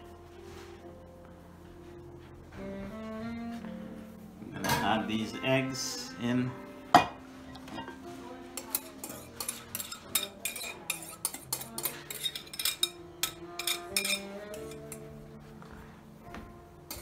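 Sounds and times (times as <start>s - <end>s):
soft background music: 0.0s - 17.0s
spoon scraping a glass bowl: 8.6s - 15.1s.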